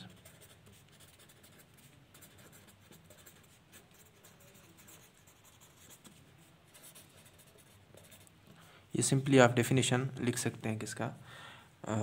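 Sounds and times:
pen scratching on paper: 0.0 - 8.3.

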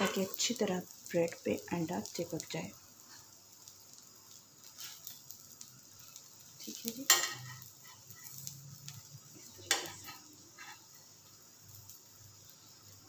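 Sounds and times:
metal spatula scraping griddle: 0.0 - 0.5, 7.1 - 8.5, 9.7 - 11.1
faint frying sizzle: 0.0 - 13.0.

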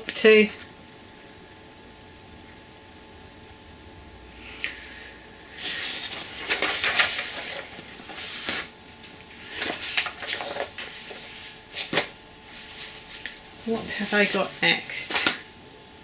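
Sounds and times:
paper and plastic bags rustling: 5.6 - 15.5.

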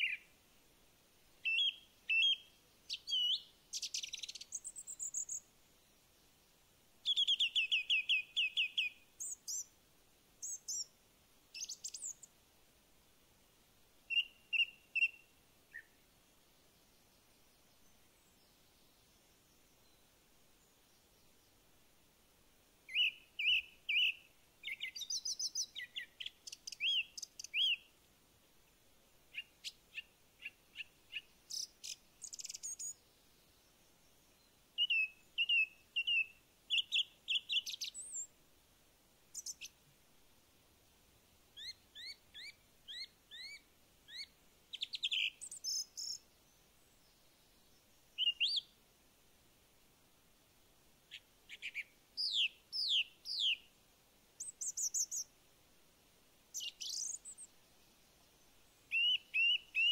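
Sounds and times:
songbirds chirping and trilling: 1.4 - 9.8, 22.8 - 28.0, 29.2 - 38.3, 41.6 - 48.8, 51.1 - 53.8, 54.4 - 55.4, 56.5 - 59.9.

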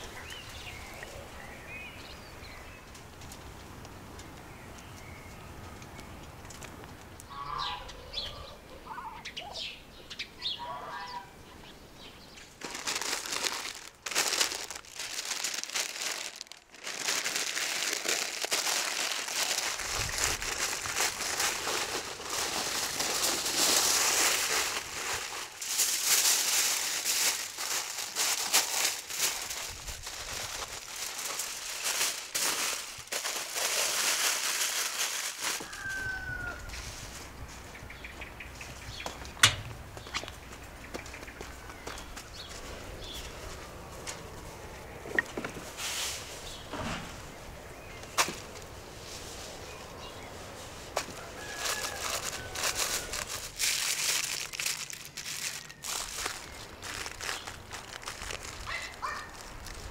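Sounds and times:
aluminium foil crinkling: 12.4 - 36.4, 50.9 - 59.9.

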